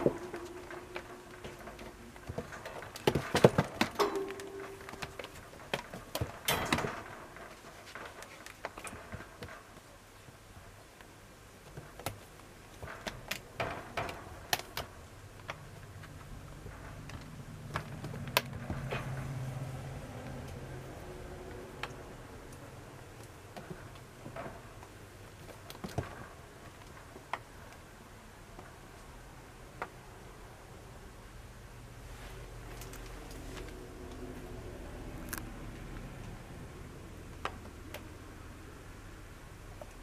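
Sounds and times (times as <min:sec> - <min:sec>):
low steady hum: 0:00.0 - 0:08.2.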